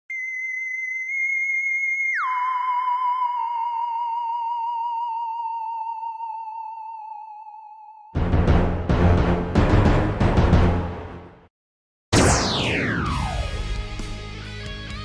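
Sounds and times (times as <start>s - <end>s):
wavering electronic tone: 0.1s - 8.1s.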